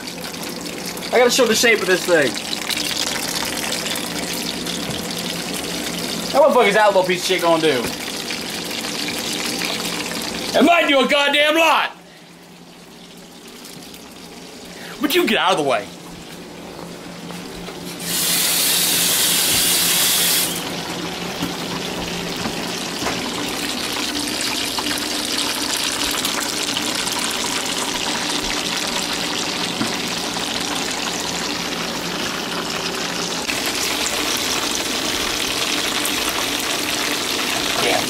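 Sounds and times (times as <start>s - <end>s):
food sizzling in a pan: 0.0s - 10.5s, 18.0s - 20.7s, 22.6s - 38.0s.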